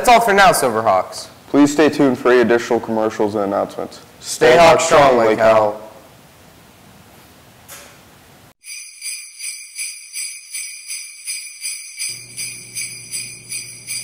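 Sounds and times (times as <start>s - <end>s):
jingle bells shaken: 8.6s - 14.0s.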